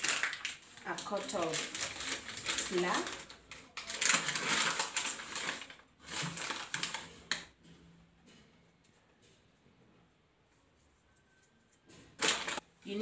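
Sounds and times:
paper packet crinkling: 0.0 - 7.5, 12.2 - 12.6.

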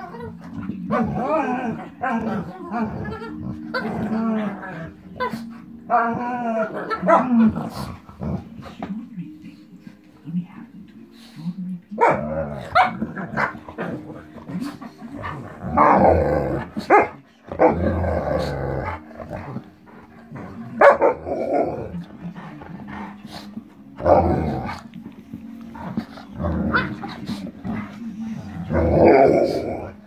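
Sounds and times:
dogs growling: 0.0 - 8.9, 12.0 - 30.0
dogs barking: 5.2 - 7.8, 12.0 - 17.8, 20.8 - 21.7.

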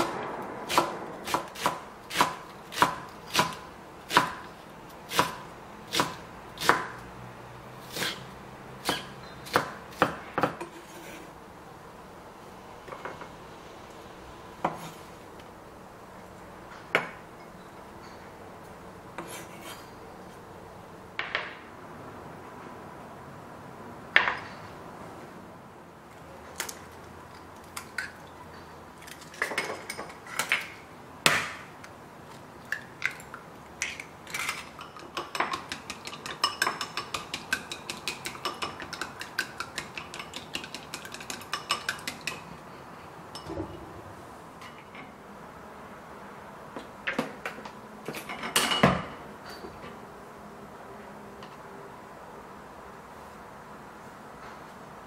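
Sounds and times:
eggs beaten in glass bowl: 34.7 - 42.5.

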